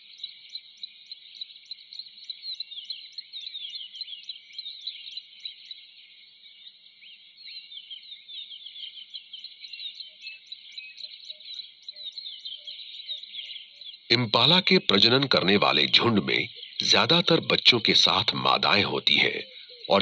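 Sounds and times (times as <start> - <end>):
small birds chirping: 0.0 - 20.0
high regular ticking call: 14.1 - 20.0.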